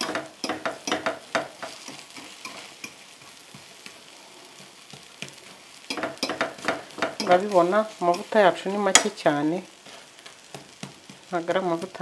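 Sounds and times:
fork clicking and tapping: 0.0 - 3.0, 5.9 - 7.4
fork scraping a pan: 0.0 - 8.4
low frying sizzle: 0.0 - 12.0.

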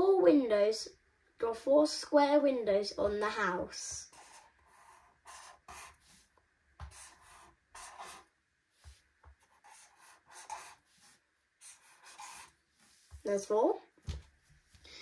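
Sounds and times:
marker pen scratching on paper: 3.1 - 13.3.

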